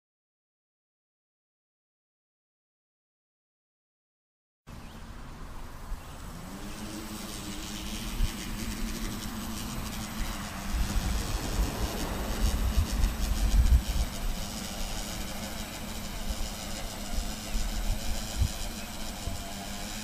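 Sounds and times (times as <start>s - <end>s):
drone propellers buzzing: 5.2s - 20.0s.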